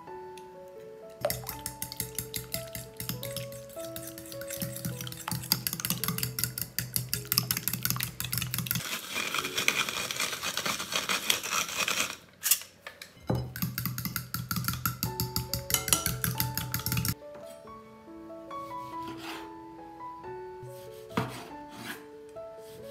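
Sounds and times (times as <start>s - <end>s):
soft background music: 0.0s - 10.4s, 13.2s - 22.9s
fork whisking in glass bowl: 1.2s - 12.2s, 13.4s - 17.2s.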